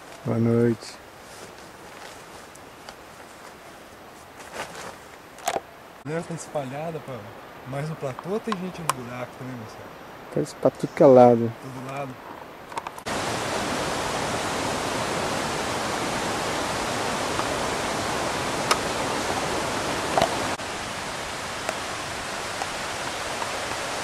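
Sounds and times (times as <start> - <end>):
waterfall rushing: 13.1 - 24.0.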